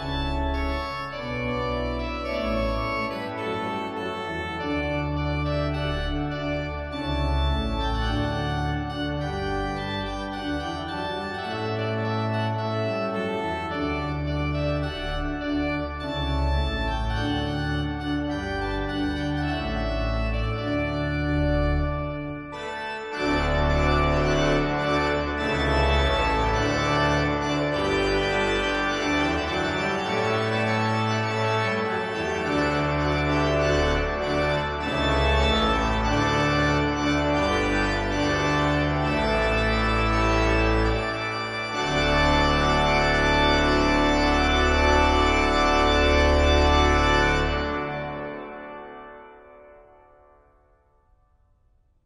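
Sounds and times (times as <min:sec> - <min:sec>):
organ music: 0:00.0 - 0:50.6.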